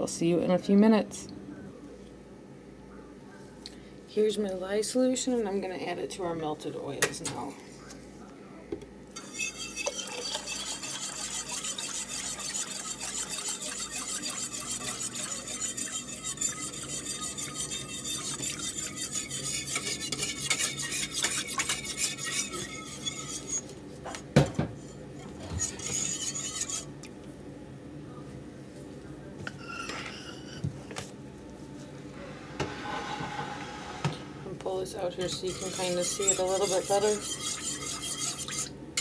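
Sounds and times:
utensil scraping in pot: 9.2s - 23.7s, 24.8s - 26.9s, 29.5s - 30.6s, 32.5s - 39.0s.

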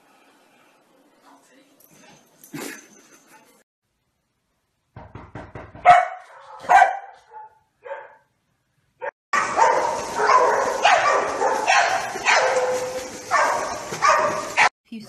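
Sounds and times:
dog barking: 5.8s - 8.3s, 9.4s - 14.7s
dogs yipping: 9.4s - 14.7s
water splashing: 9.4s - 14.7s.

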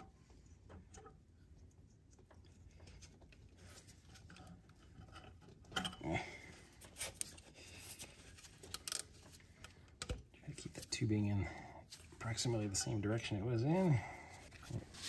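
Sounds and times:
rubber hose rubbing and clicks: 6.8s - 10.9s.

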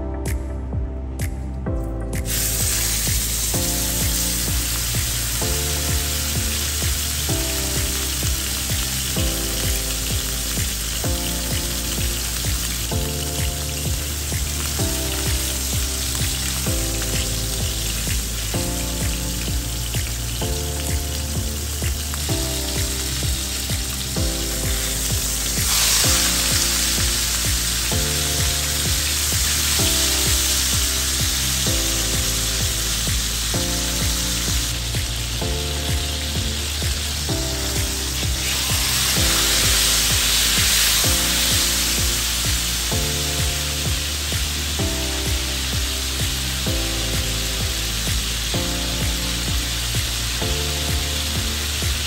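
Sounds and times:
background music: 0.0s - 52.0s
steak sizzling in a pan: 2.2s - 52.0s.

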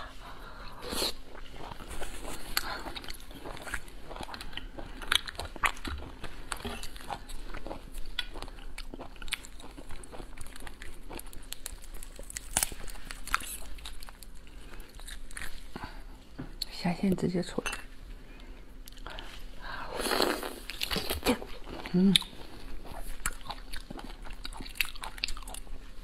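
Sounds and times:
chewing and crunching: 1.2s - 16.0s, 20.1s - 26.0s.

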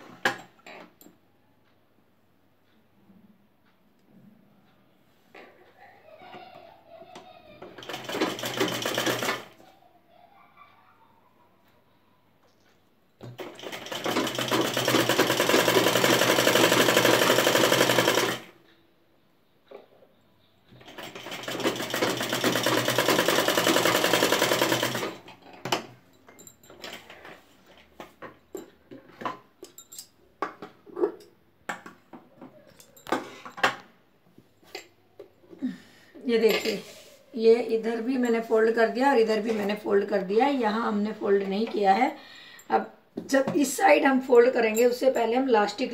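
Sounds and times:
sewing machine stitching: 7.6s - 9.6s, 13.2s - 18.6s, 20.8s - 25.3s.

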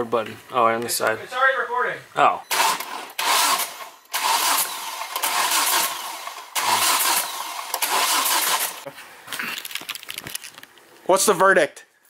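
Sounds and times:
car engine cranking on starter: 2.5s - 8.9s.

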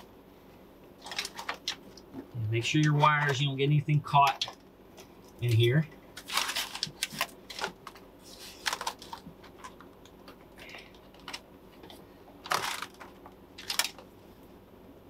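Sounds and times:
foil mat crackling: 6.2s - 9.8s, 12.4s - 14.1s.

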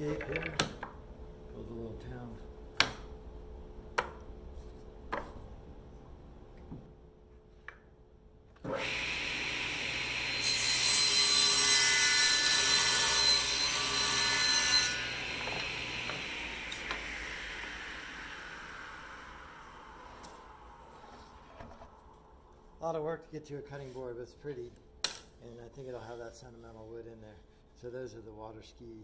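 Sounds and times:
wood pieces clacking on metal: 0.0s - 0.9s
table saw running: 8.7s - 21.1s
table saw cutting hardwood: 8.7s - 21.4s.

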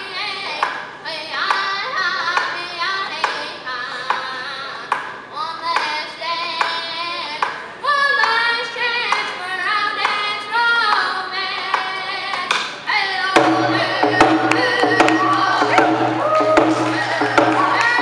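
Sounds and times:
boy singing in a high voice: 0.0s - 18.0s
hand drum beating: 13.4s - 18.0s.

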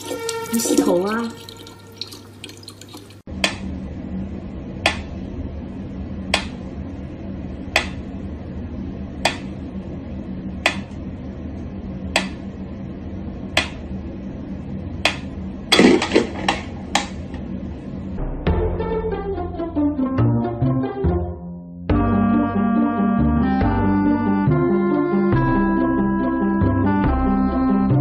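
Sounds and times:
tap water running: 0.0s - 3.3s
low steady hum: 0.0s - 18.5s.

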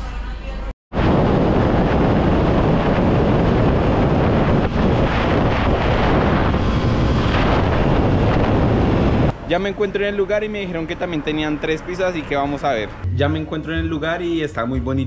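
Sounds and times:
wind rushing over microphone: 0.9s - 9.4s
motorcycle road and engine noise: 1.8s - 13.1s.

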